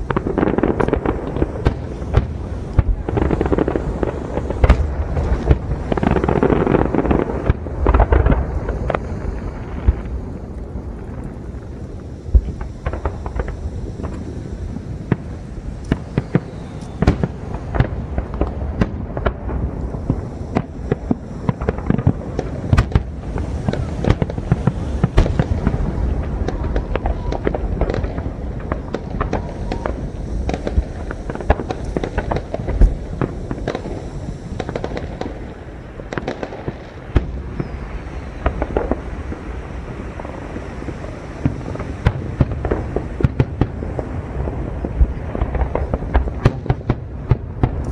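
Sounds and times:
low rumble: 0:00.0 - 0:16.3
fireworks bangs: 0:00.0 - 0:47.9.

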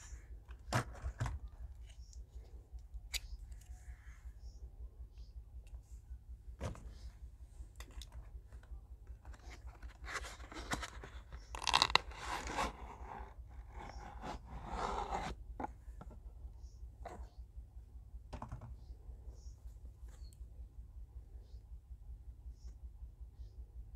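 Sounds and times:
steady low hum: 0:00.0 - 0:23.9
carton tearing and crunching: 0:11.5 - 0:12.8
tube scraping out of carton: 0:11.5 - 0:13.2.

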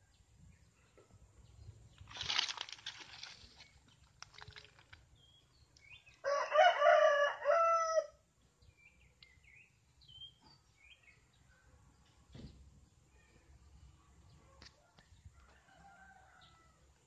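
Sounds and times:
small birds chirping: 0:00.0 - 0:06.3, 0:08.4 - 0:15.6
rooster crowing: 0:06.2 - 0:08.2, 0:15.4 - 0:16.8.

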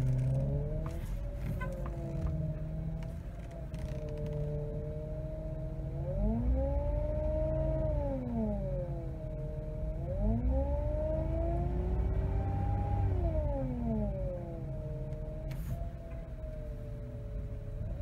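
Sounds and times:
power steering pump whining: 0:00.0 - 0:04.6.

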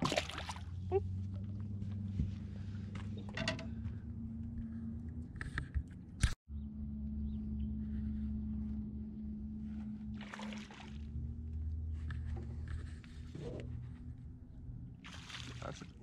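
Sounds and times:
boat motor humming: 0:00.0 - 0:16.0.

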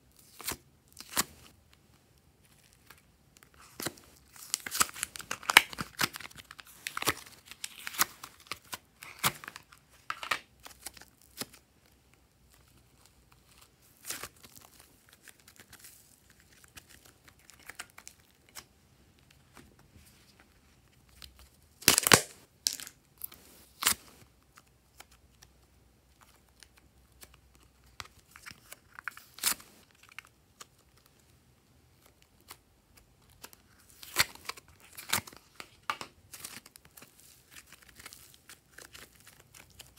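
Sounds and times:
slime crackling and popping: 0:21.8 - 0:22.9.

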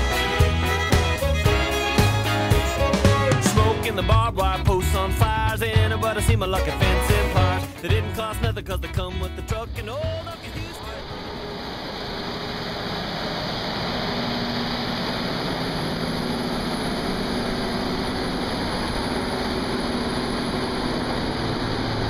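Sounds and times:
cotton picker engine droning: 0:00.0 - 0:22.0.

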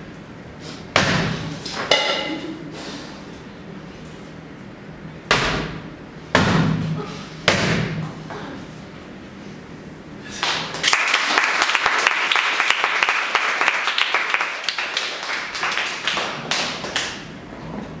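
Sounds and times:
audience applauding: 0:10.4 - 0:17.2.

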